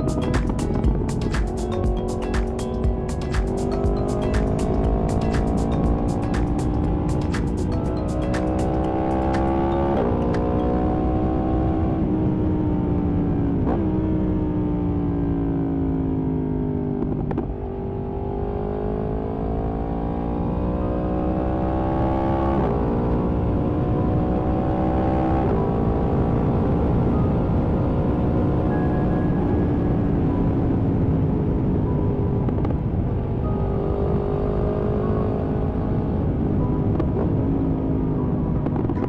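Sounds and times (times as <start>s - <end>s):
motorcycle engine revving: 0.0s - 26.9s.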